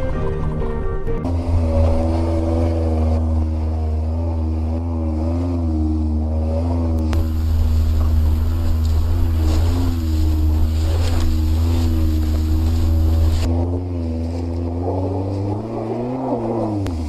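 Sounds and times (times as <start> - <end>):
car engine droning under load: 0.0 - 17.0.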